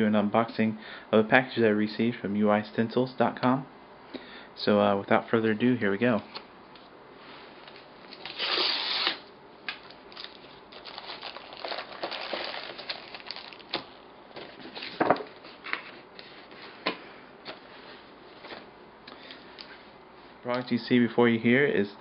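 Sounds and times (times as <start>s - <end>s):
envelope tearing open: 8.1s - 9.2s, 10.2s - 13.9s
rustling and crinkling packaging: 9.8s - 16.8s.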